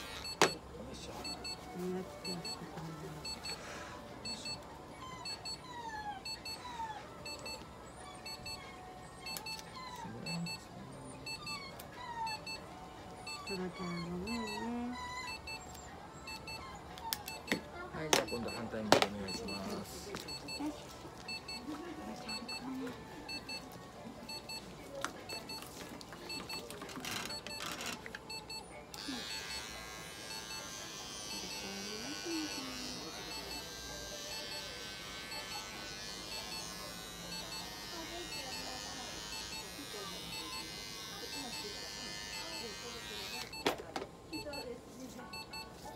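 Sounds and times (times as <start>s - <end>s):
device beeping: 0.0s - 3.6s, 4.2s - 4.6s, 5.2s - 5.6s, 6.2s - 7.6s, 8.2s - 12.6s, 13.2s - 23.7s, 24.3s - 24.7s, 26.3s - 29.7s, 30.3s - 42.8s, 45.3s - 45.7s
high electronic beeps: 3.2s - 3.6s, 4.2s - 4.6s, 7.2s - 7.6s, 11.2s - 11.6s, 13.3s - 13.7s, 15.2s - 15.7s, 16.3s - 16.6s, 18.2s - 18.7s, 19.3s - 20.7s.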